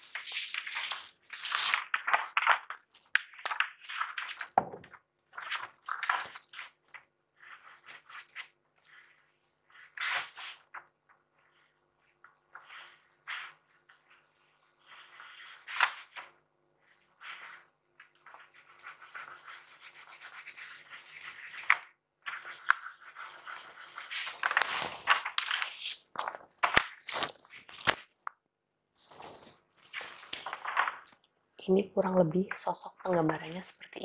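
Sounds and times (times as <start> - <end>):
pencil scratching on paper: 18.3 - 21.6, 22.3 - 24.3.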